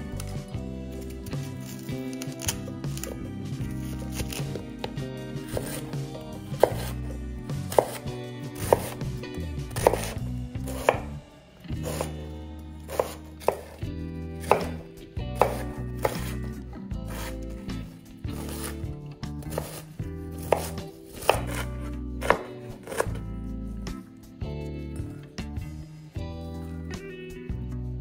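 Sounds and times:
knife crunching through cabbage: 0.0 - 11.1, 11.7 - 13.8, 14.4 - 23.3.

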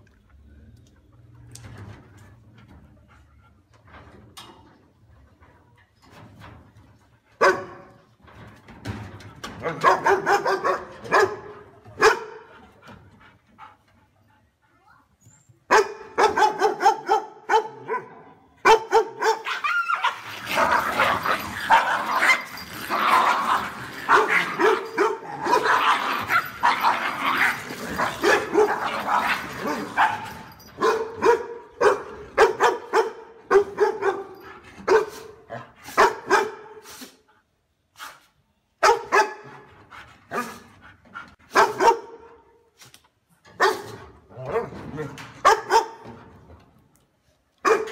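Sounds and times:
dogs barking: 9.7 - 12.4, 15.7 - 22.6, 23.2 - 35.2, 35.9 - 36.8, 38.8 - 39.5, 41.5 - 42.3, 45.4 - 46.0, 47.6 - 47.9
dogs fighting: 19.4 - 30.7.

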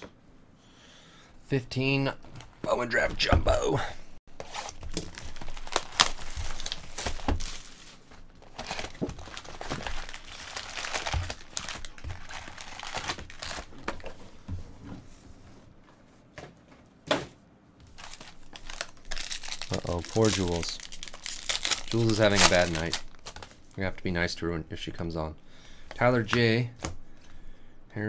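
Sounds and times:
plastic wrapping crinkling: 4.3 - 14.2, 17.8 - 23.8
plastic wrap tearing: 4.4 - 13.9, 17.9 - 23.5.

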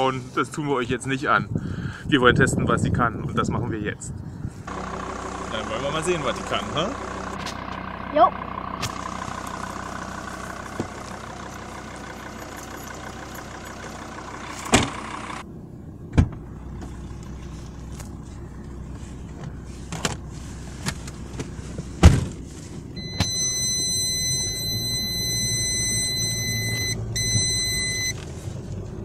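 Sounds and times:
car engine idling: 4.6 - 29.0
car door knocks and thumps: 21.4 - 22.4
high electronic tone: 23.0 - 28.1.

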